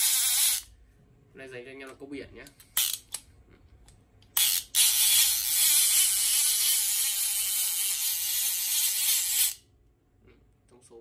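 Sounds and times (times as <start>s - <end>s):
fishing reel whirring buzz: 0.0s - 0.7s, 4.4s - 9.6s
fishing reel clack: 4.4s - 9.6s.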